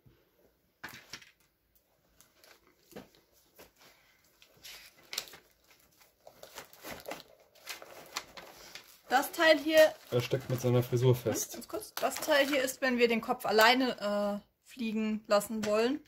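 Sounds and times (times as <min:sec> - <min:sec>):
thin plastic crinkling: 0:02.0 - 0:12.9.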